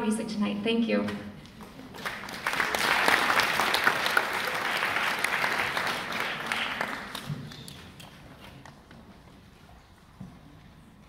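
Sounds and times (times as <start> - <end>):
audience applauding: 1.6 - 8.6.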